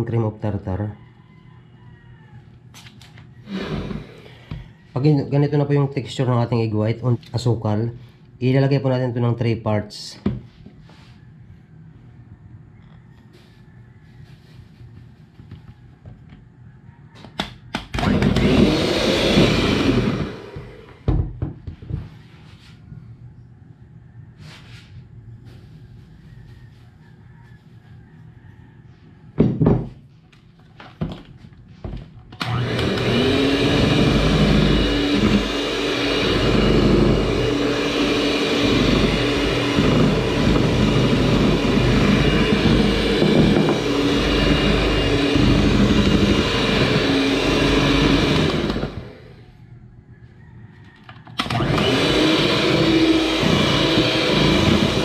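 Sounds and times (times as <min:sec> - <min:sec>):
electric hand mixer beating: 0:03.4 - 0:06.3, 0:17.9 - 0:21.2, 0:32.4 - 0:49.4, 0:51.4 - 0:55.0
beaters knocking: 0:38.6 - 0:46.0.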